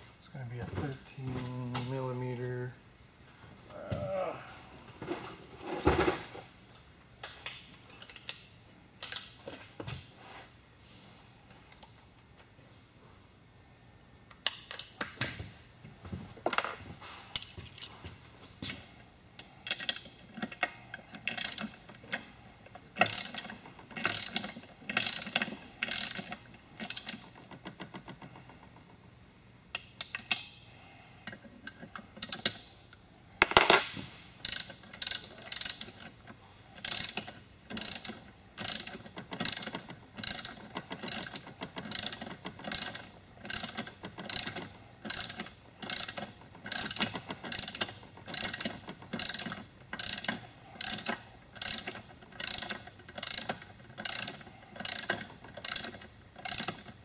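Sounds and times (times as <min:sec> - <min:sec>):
ratchet wrench clicking: 0:19.6 - 0:22.2, 0:23.0 - 0:27.3, 0:34.4 - 0:36.0, 0:36.8 - 0:57.0.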